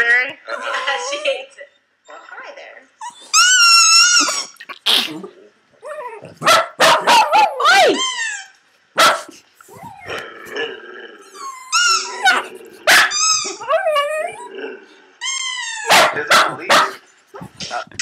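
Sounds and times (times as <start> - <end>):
dog barking and yelping: 5.8 - 10.2, 11.4 - 14.5, 15.5 - 18.0.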